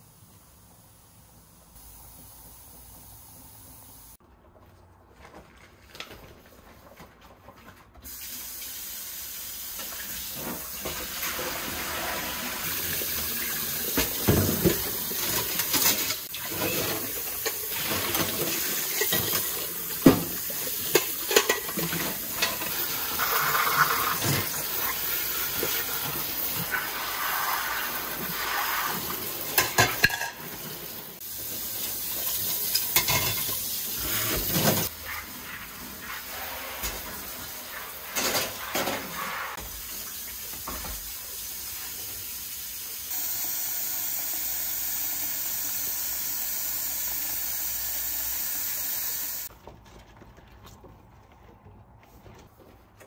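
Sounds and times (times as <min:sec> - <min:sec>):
metal pots clanking: 0:13.9 - 0:24.6, 0:29.5 - 0:30.6, 0:32.2 - 0:33.7.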